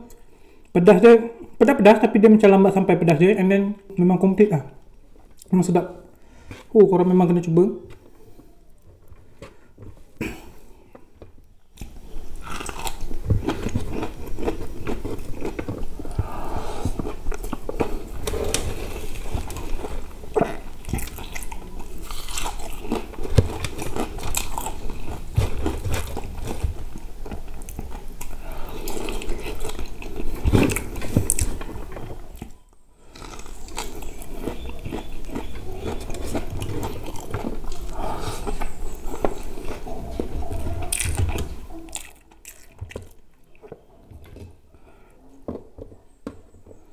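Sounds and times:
chewing crispy fried food: 11.0s - 44.5s.

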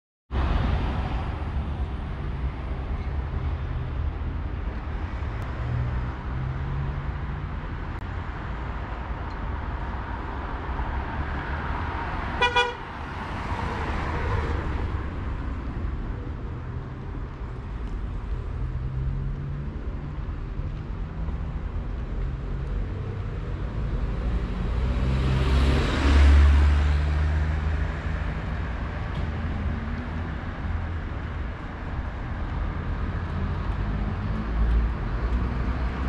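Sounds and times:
car passing: 0.3s - 36.0s
car horn toots: 12.4s - 12.8s.

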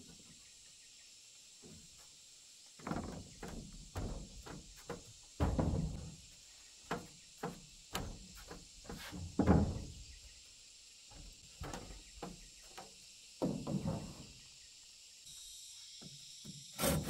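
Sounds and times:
wooden boards knocking: 2.8s - 6.2s, 6.9s - 10.0s
footsteps on wooden planks: 2.8s - 10.0s, 11.1s - 14.3s.

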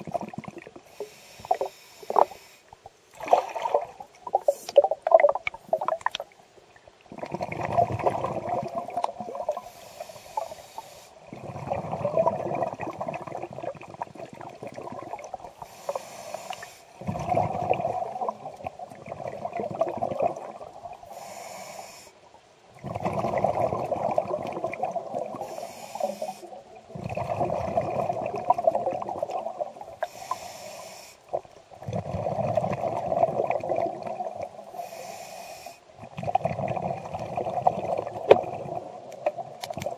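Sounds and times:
exhaled air bubbling: 0.0s - 21.7s, 22.5s - 30.5s, 31.2s - 35.2s, 35.9s - 39.9s
regulator inhale hiss: 0.8s - 2.8s, 9.5s - 11.3s, 15.6s - 17.0s, 21.1s - 22.3s, 25.4s - 26.6s, 30.0s - 31.4s, 34.7s - 35.9s.

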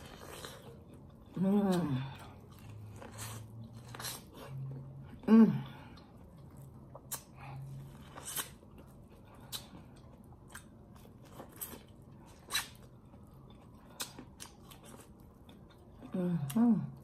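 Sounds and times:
corn being chewed: 0.0s - 5.0s, 6.2s - 16.1s.

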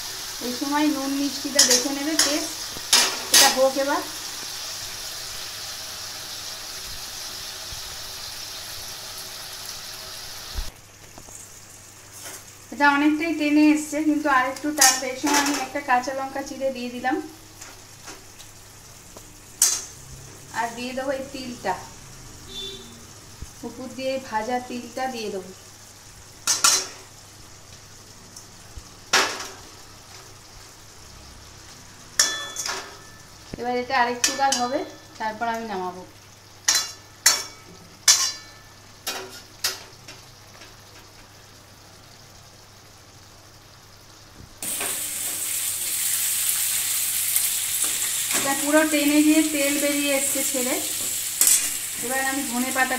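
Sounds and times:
curry sizzling: 0.0s - 52.9s
metal spatula scraping a pan: 36.7s - 39.8s, 50.9s - 51.9s.

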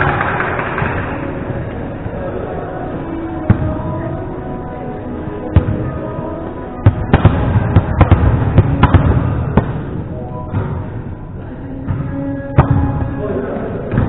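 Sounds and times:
volleyballs being struck: 5.5s - 6.0s, 6.8s - 11.0s, 11.8s - 13.2s.

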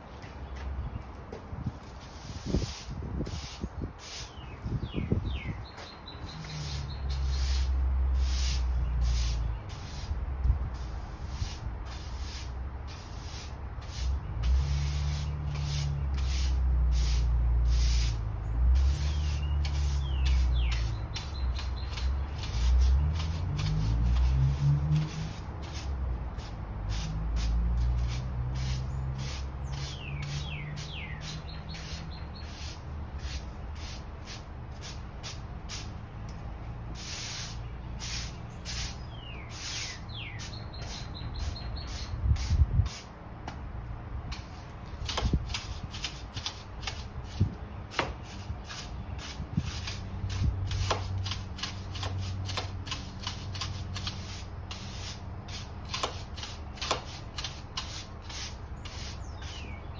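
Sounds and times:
birds chirping: 0.0s - 1.8s, 3.5s - 10.1s, 18.3s - 24.2s, 28.0s - 34.9s, 36.0s - 42.4s, 58.2s - 59.9s
push broom sweeping concrete: 1.7s - 5.0s, 6.2s - 43.1s, 44.3s - 59.9s.

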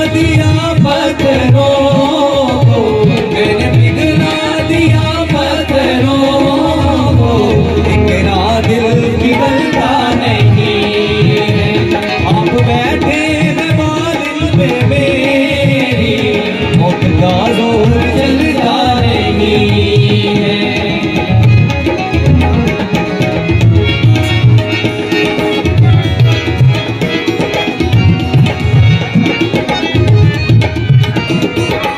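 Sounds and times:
man singing: 0.0s - 23.5s
harmonium: 0.0s - 31.9s
tabla drumming: 0.0s - 31.9s.

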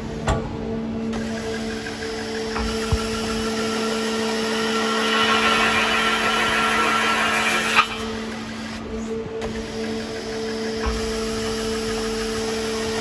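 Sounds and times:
machine hum: 0.7s - 10.8s
harsh high hiss: 4.2s - 8.7s.

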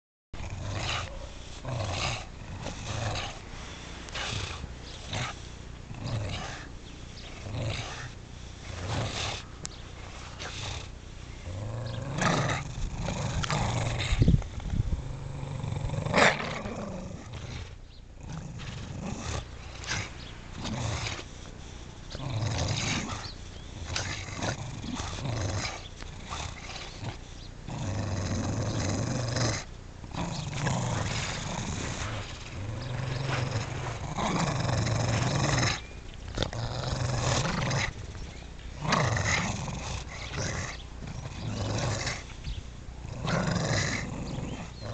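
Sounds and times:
dogs growling: 0.4s - 44.9s.

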